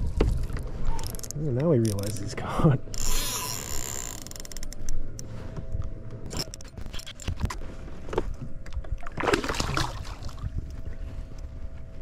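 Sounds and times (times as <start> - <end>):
water splashing: 9.0 - 10.5.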